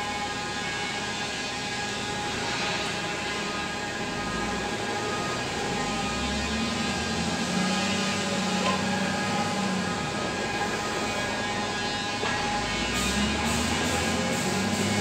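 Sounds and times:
diesel engine running: 4.0 - 15.0.

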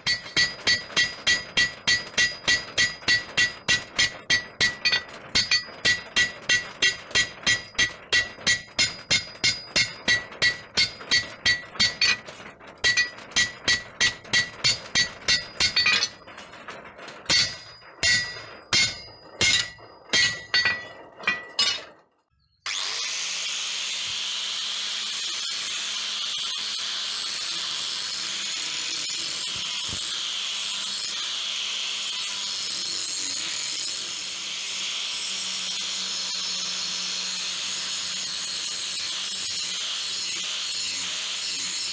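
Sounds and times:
hammer ringing on anvil: 0.0 - 12.2, 12.8 - 16.3, 17.3 - 22.0
angle grinder grinding metal: 0.0 - 21.9, 22.7 - 41.9.

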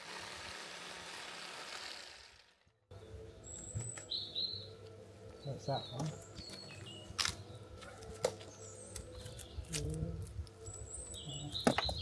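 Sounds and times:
small birds chirping: 2.9 - 12.0.

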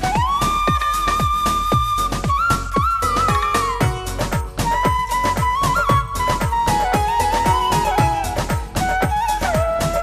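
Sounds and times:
steady drum beat: 0.0 - 10.0
high lead melody: 2.0 - 9.4.

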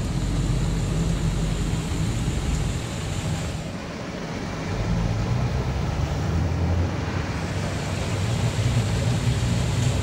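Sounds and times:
water rushing with low rumble: 0.0 - 10.0.

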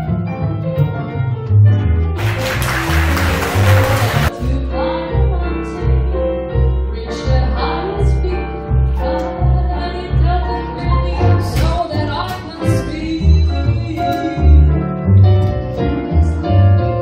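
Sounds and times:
double bass playing: 0.0 - 17.0
keyboard accompaniment: 0.0 - 17.0
woman singing jazz: 4.3 - 15.0.

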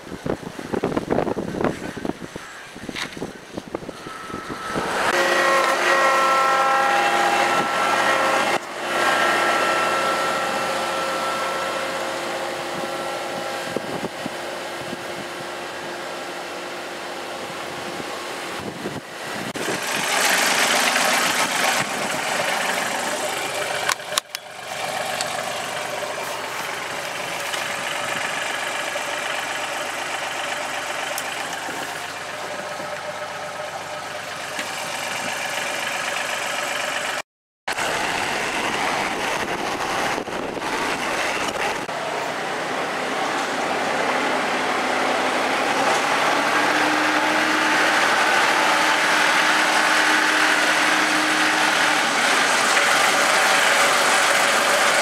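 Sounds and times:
tractor diesel engine idling: 0.0 - 55.0
wind rushing: 38.0 - 41.9.

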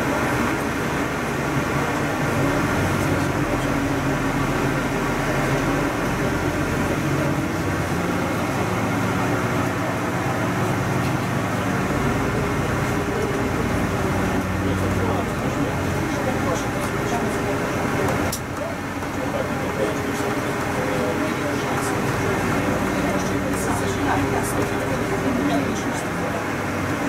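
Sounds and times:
bus engine and road drone: 0.0 - 27.0.

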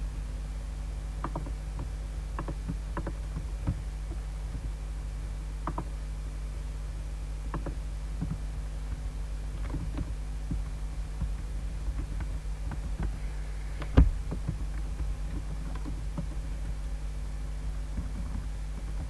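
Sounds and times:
low electrical hum: 0.0 - 19.0
mouse and keyboard clicks: 1.2 - 1.5, 7.5 - 8.4.

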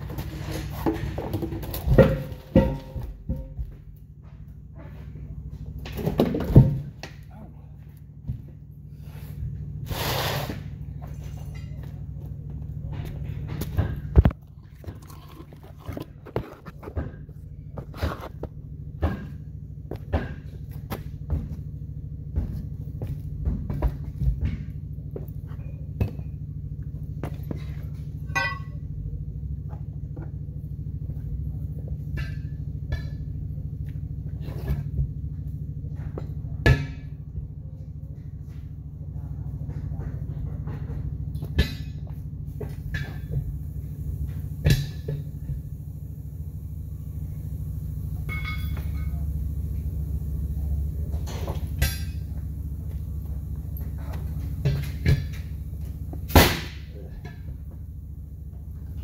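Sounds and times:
tire irons knocking: 0.0 - 7.3, 47.8 - 59.0
low machine hum: 0.0 - 59.0
ringing metal clink: 28.2 - 28.8, 48.2 - 49.4
knocks of steel tools: 28.3 - 28.8, 48.3 - 49.2.

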